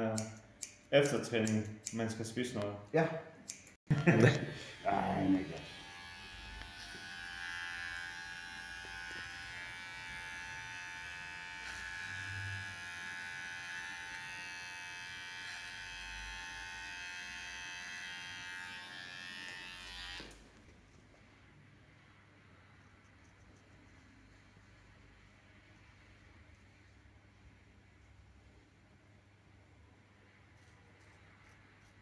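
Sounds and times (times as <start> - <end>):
electric hair trimmer buzzing: 4.0 - 20.4.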